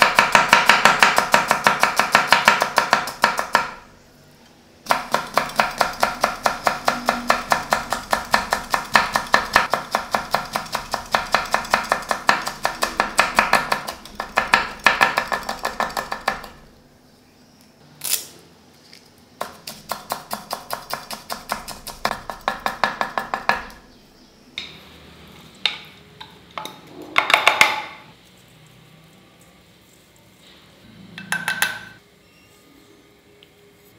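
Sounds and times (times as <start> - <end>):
knife chopping on wooden board: 0.0 - 3.8, 4.9 - 16.6, 19.4 - 23.8.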